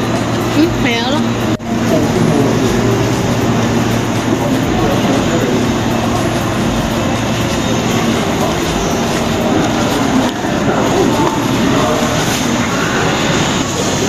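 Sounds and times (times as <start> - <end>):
loud rumbling noise: 0.0 - 14.0
low hum: 0.0 - 14.0.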